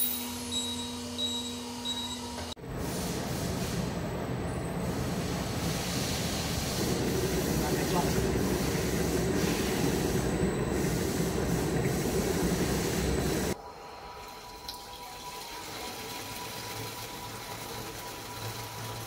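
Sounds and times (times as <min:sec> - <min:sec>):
mixer churning liquid: 0:05.3 - 0:19.0
liquid running out: 0:05.7 - 0:19.0.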